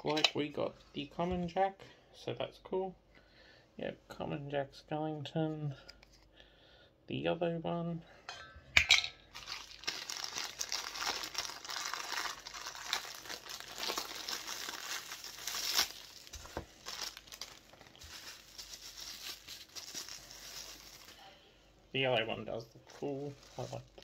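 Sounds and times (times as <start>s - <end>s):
plastic packaging crinkling and tearing: 9.3s - 21.4s, 22.9s - 24.0s.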